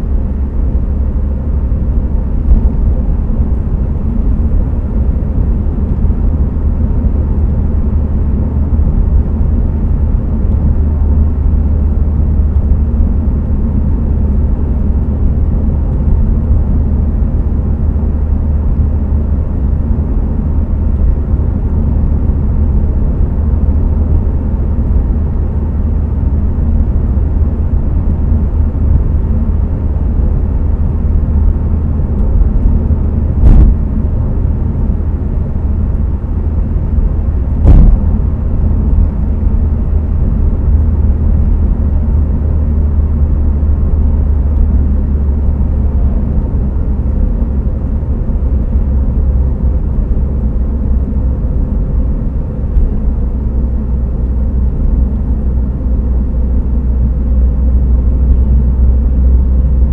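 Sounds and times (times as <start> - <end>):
car engine and tyre rumble: 0.0 - 59.9
short thump: 33.4 - 33.8, 37.6 - 38.2.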